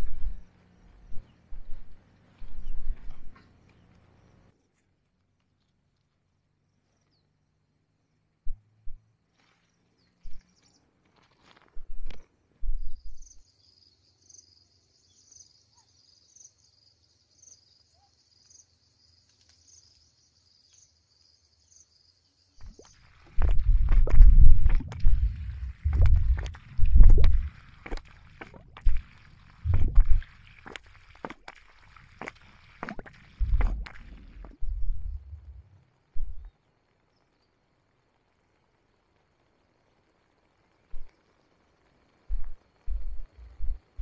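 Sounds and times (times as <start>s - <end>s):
water pouring onto soil: 22.6s - 35.6s.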